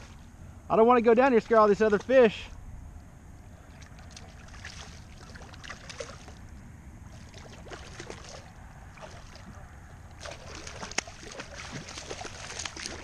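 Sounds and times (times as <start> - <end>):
fish splashing in water: 3.7 - 13.0.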